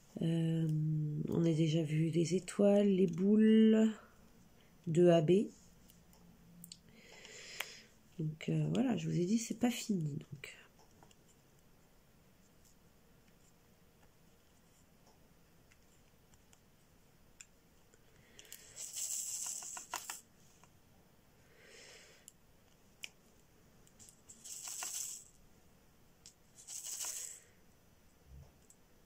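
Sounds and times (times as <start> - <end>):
rhinestones rattling in a tray: 18.6 - 20.2, 24.0 - 25.4, 26.5 - 27.4.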